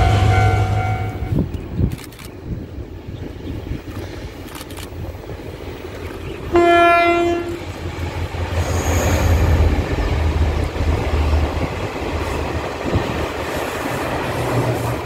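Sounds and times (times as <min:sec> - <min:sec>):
train horn blast: 0:00.0 - 0:01.4, 0:06.5 - 0:07.7
passenger train running: 0:00.0 - 0:15.0.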